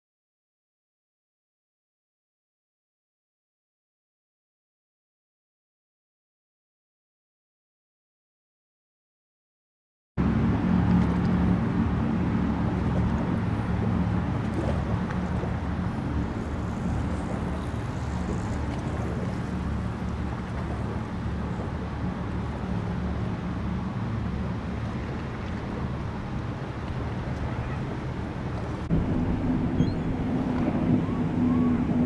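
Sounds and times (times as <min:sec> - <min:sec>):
powerboat engines droning: 0:10.2 - 0:32.0.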